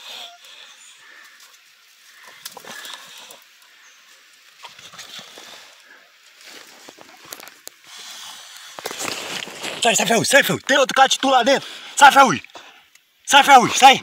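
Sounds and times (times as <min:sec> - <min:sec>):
scraping in dirt: 0:04.6 - 0:11.3.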